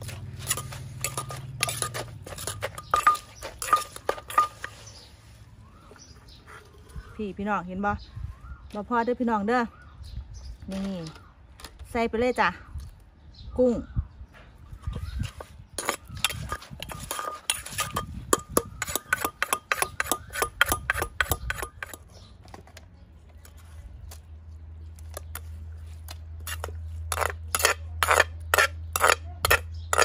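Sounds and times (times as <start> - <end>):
spoon scraping mortar: 0.0 - 5.5, 14.8 - 22.6, 25.0 - 30.0
pestle knocking in clay mortar: 15.8 - 22.1.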